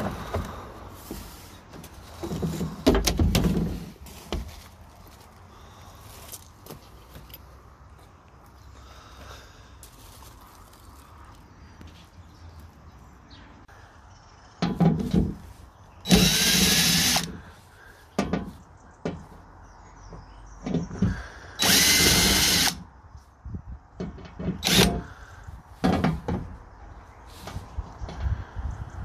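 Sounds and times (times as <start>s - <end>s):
cordless drill motor whine: 16.1s - 17.3s, 21.6s - 22.8s, 24.6s - 25.0s.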